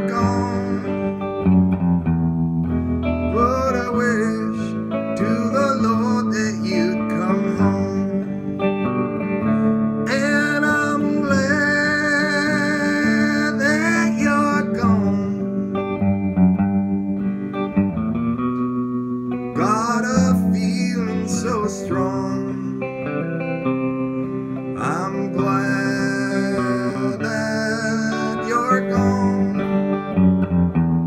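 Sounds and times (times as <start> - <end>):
electric guitar solo: 0.0 - 31.0.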